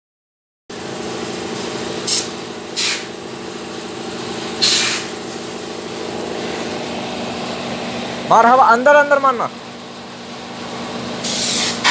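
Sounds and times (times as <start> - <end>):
engine running: 0.7 - 11.9
short bursts of hissing: 2.0 - 3.1, 4.6 - 5.2, 11.2 - 11.9.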